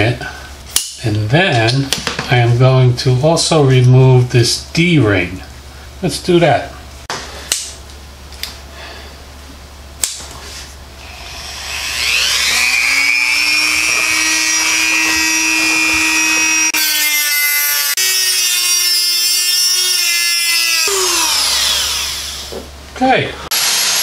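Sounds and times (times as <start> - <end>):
cutoff wheel grinding metal: 11.0 - 22.5
rotary tool motor whine: 11.0 - 22.6.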